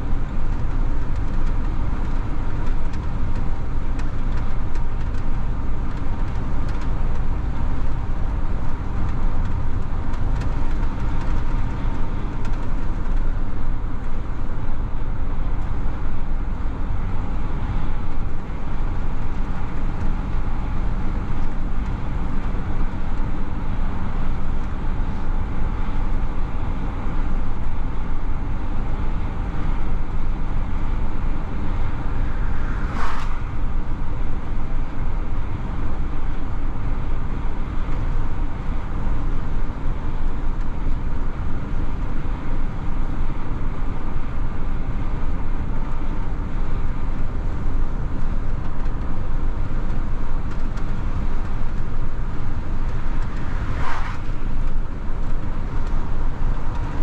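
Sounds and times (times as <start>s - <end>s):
truck engine and tyre rumble: 0.0s - 57.0s
brief hissing: 32.8s - 33.4s, 53.8s - 54.4s.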